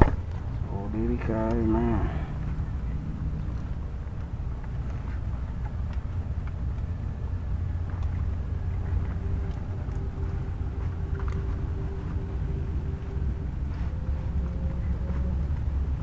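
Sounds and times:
faint steady hum: 0.0s - 16.0s
wind buffeting microphone: 0.0s - 16.0s.

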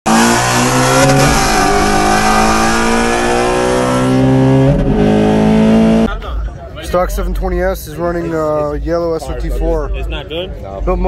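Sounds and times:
car engine accelerating hard: 0.1s - 6.2s.

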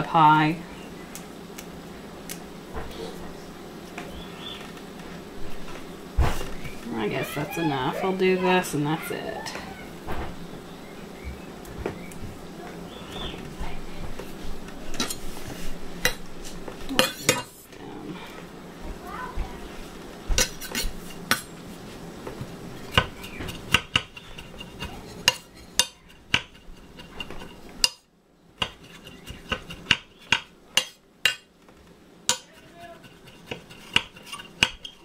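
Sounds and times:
knife chopping on stone board: 22.9s - 28.0s, 28.6s - 31.5s, 32.3s - 35.0s.

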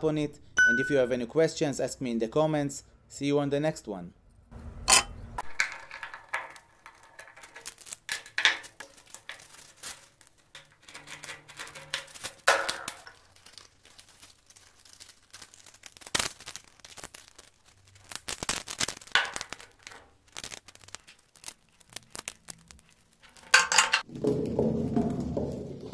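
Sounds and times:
sandpaper crinkling: 6.0s - 23.6s.

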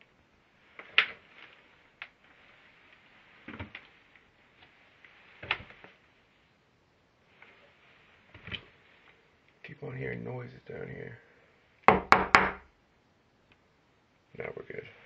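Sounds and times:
knocks: 11.9s - 12.6s.

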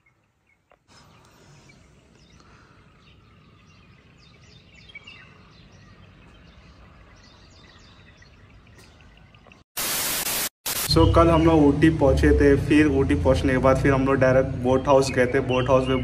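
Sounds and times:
small birds chirping: 0.0s - 9.7s, 13.6s - 16.0s.

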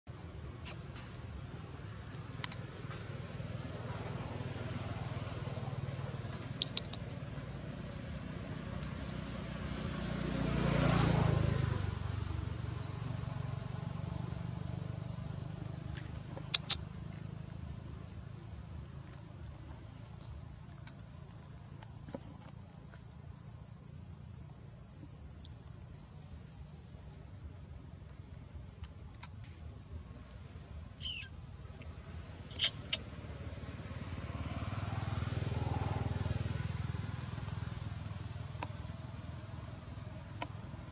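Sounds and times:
insects droning: 0.0s - 40.9s
motor vehicle passing: 1.0s - 25.1s, 32.0s - 40.9s
faint sharp clicks: 2.4s - 3.0s.

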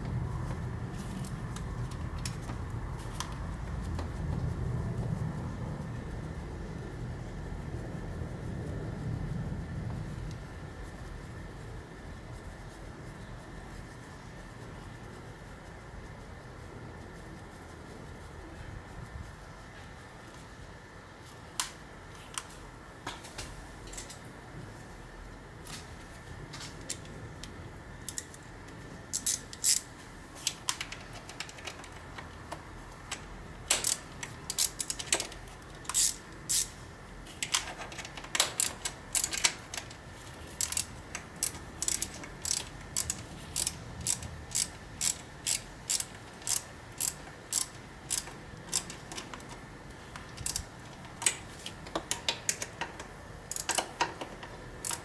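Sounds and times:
ratchet wrench clicking: 28.1s - 28.4s, 29.1s - 36.8s, 37.4s - 49.6s, 50.2s - 55.0s.

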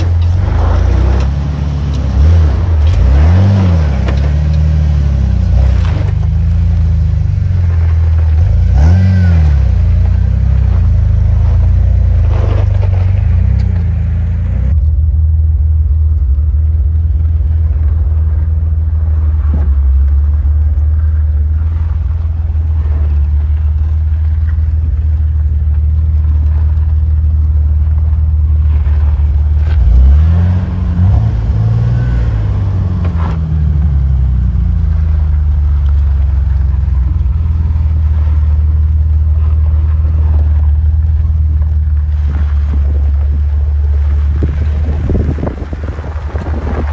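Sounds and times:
car engine revving: 0.0s - 46.9s.

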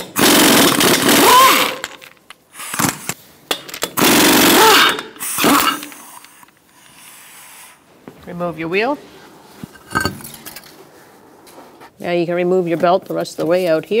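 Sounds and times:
pneumatic impact wrench: 0.0s - 3.2s, 3.8s - 6.5s.

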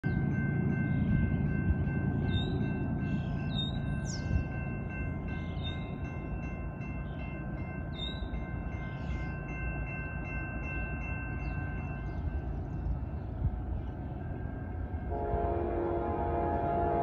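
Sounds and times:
distant locomotive air horn: 15.1s - 17.0s.

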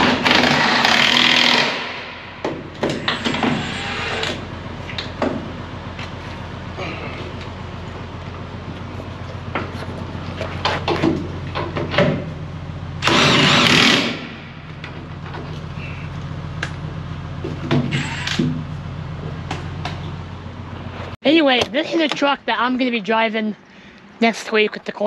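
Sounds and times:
low engine hum: 4.1s - 25.0s.

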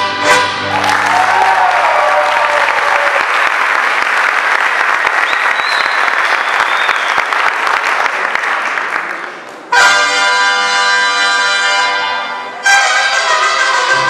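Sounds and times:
music: 0.0s - 1.6s, 9.7s - 14.0s
audience applauding: 0.6s - 9.7s.

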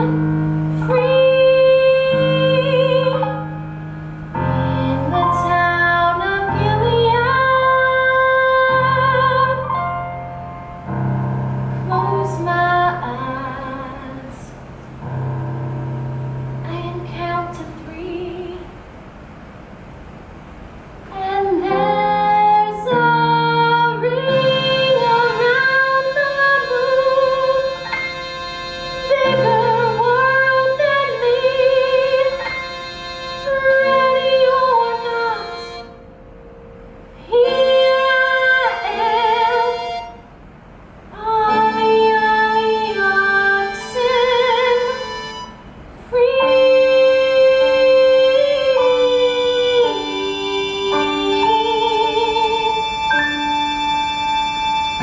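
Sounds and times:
woman singing ballad: 0.0s - 3.6s, 4.4s - 10.2s, 11.9s - 14.6s, 16.6s - 18.7s, 21.1s - 28.0s, 29.0s - 32.6s, 33.4s - 35.9s, 37.2s - 40.1s, 41.1s - 45.2s, 46.1s - 53.6s
keyboard accompaniment: 0.0s - 18.6s, 21.2s - 55.0s.

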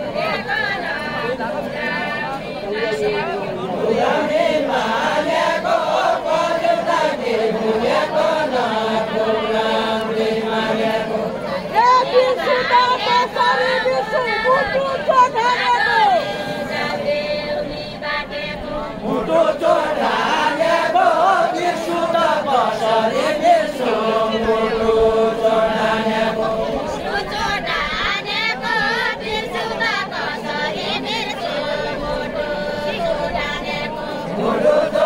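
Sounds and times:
group singing folk song: 0.0s - 35.0s.

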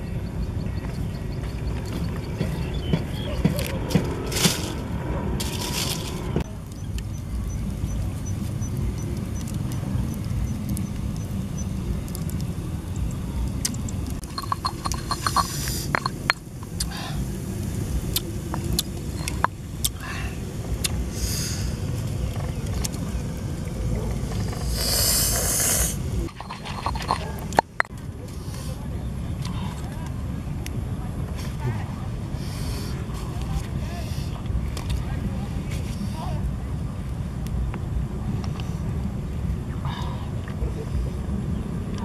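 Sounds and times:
stone pestle grinding in mortar: 14.2s - 16.8s, 26.3s - 27.9s.

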